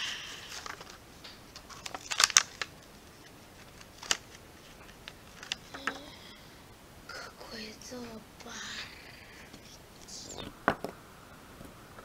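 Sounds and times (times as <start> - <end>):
plastic packaging crinkling: 0.4 - 5.8.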